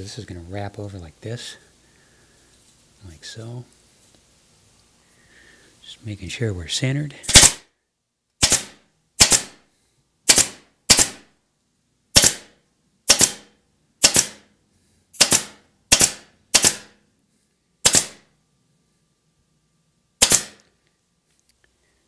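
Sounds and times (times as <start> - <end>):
staple gun firing: 7.3 - 7.6, 8.4 - 9.6, 10.3 - 11.2, 12.2 - 12.5, 13.1 - 14.4, 15.2 - 16.9, 17.8 - 18.2, 20.2 - 20.7.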